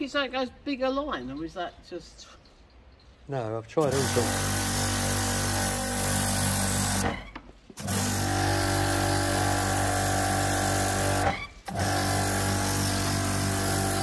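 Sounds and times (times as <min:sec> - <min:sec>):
water jet hissing on stone: 0:03.8 - 0:07.1, 0:07.8 - 0:14.0
pressure washer motor humming: 0:03.8 - 0:14.0.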